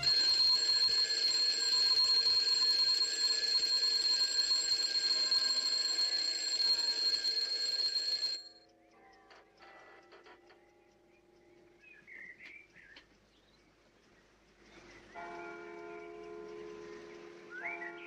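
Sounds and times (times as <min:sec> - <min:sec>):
alarm clock ringing: 0:00.0 - 0:08.8.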